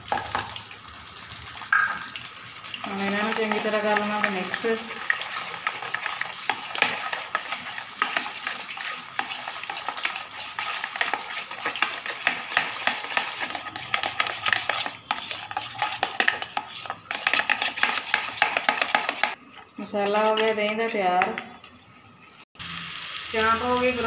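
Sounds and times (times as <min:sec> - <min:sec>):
spoon scraping in plastic bowl: 0:03.1 - 0:19.4.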